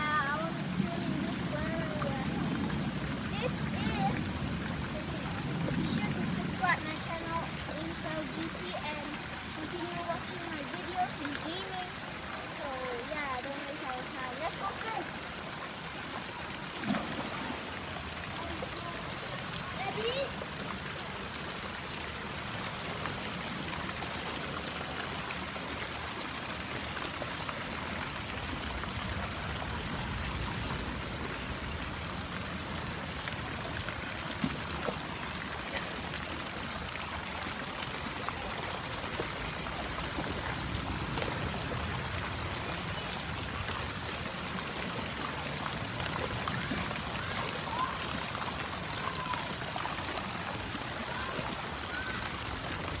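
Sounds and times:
fountain jets pattering on water: 0.0s - 53.0s.

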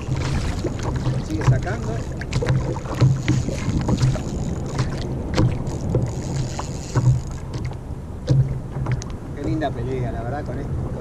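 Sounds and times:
water lapping against kayak hull: 0.0s - 11.0s
sharp knocks on kayak: 4.8s - 6.1s, 7.0s - 9.6s.

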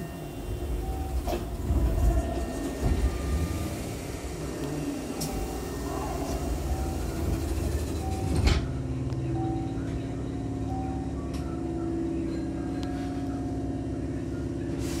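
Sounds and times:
train doors shutting with a thump: 0.0s - 8.8s
train car humming: 0.0s - 15.0s.

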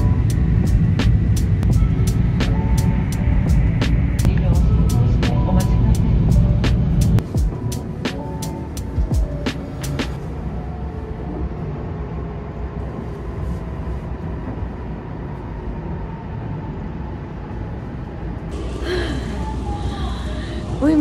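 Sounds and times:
train rumble inside carriage: 0.0s - 21.0s
hissy station ambience: 18.5s - 21.0s.

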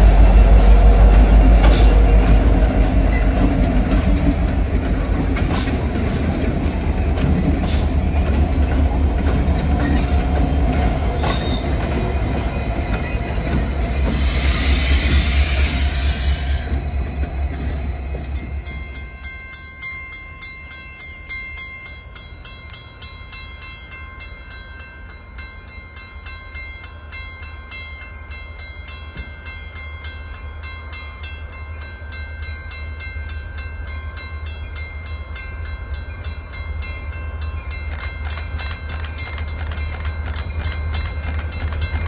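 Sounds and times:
locomotive engine rumble: 0.0s - 19.2s
loud train noise: 0.0s - 42.0s.

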